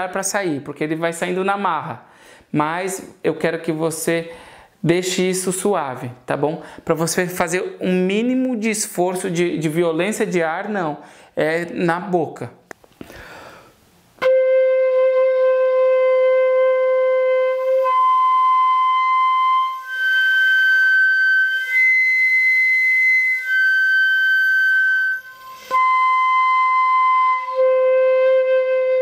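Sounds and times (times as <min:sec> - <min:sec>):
fife overblown notes: 0:14.2 - 0:29.0.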